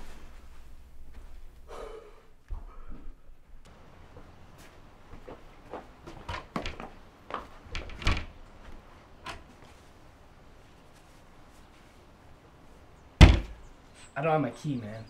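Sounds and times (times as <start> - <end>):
door handle and latch rattling: 6.3 - 6.9, 7.7 - 8.4.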